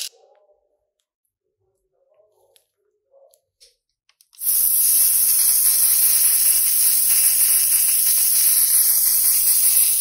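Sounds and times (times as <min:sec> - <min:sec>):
spray paint hissing: 0:04.4 - 0:10.0.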